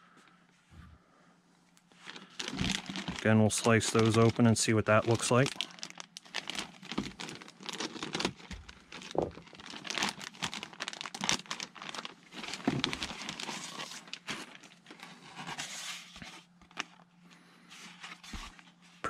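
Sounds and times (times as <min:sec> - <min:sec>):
plastic bag crinkling: 0:02.0 - 0:15.6.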